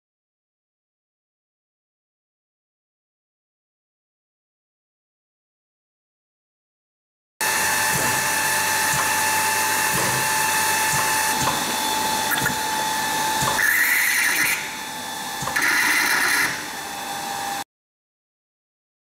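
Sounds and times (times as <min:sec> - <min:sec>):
mixer high whine: 0:07.4 - 0:17.7.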